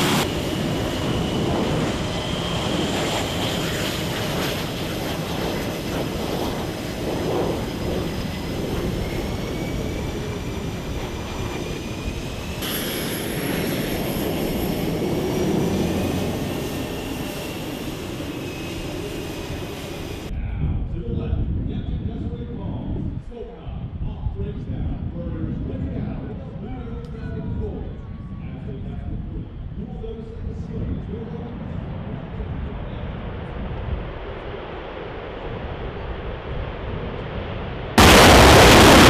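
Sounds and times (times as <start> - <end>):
high turbine whine: 0.0 - 20.4, 37.5 - 39.0
jet engines running: 0.0 - 20.4, 31.4 - 39.0.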